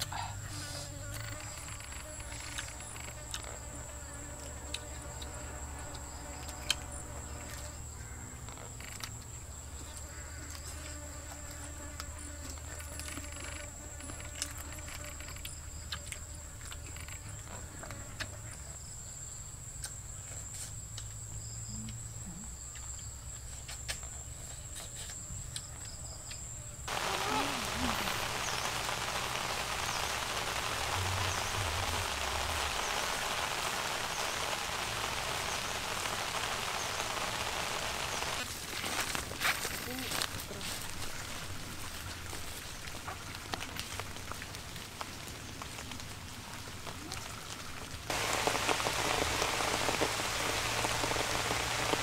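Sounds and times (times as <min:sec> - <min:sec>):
insects droning: 0:00.0 - 0:52.0.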